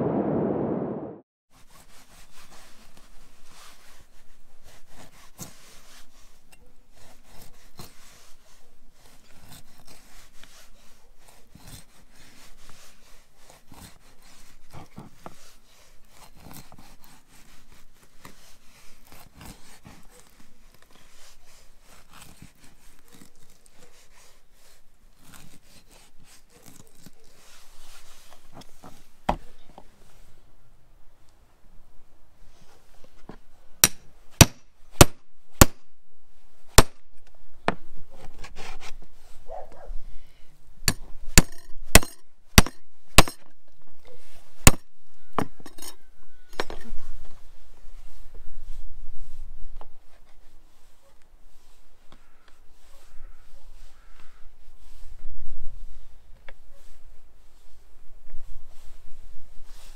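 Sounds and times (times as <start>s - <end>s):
knife cutting and scraping ribs: 3.7s - 29.6s, 38.1s - 39.6s.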